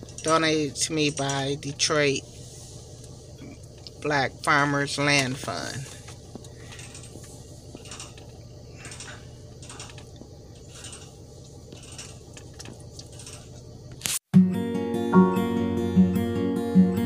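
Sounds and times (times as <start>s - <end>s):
car engine idling: 0.0s - 14.0s
acoustic guitar music: 14.3s - 17.0s.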